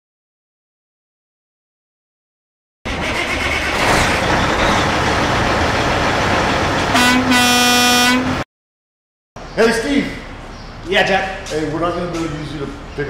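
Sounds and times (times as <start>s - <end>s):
truck engine running: 2.9s - 8.4s
truck horn blast: 6.9s - 8.5s.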